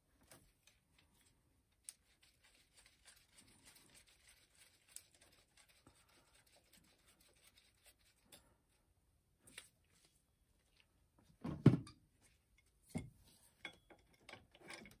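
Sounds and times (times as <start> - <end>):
faint scratching: 0.4 - 8.8.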